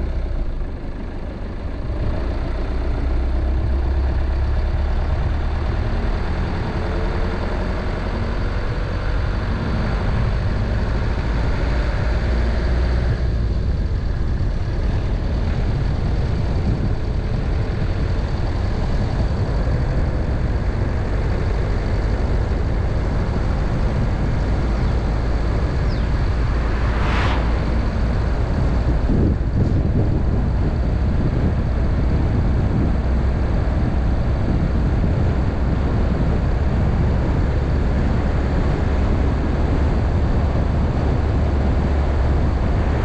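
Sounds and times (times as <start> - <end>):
car engine and tyre rumble: 0.0 - 43.0
whoosh of passing car: 24.5 - 30.3.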